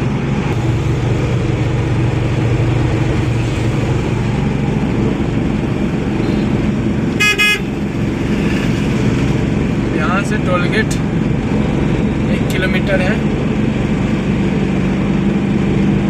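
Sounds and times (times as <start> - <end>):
engine and road noise: 0.0 - 16.0
short horn blast: 7.2 - 7.8.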